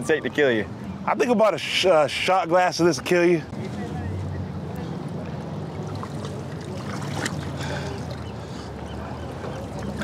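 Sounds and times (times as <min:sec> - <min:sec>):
water sloshing and dripping: 0:05.2 - 0:08.6, 0:09.4 - 0:10.0.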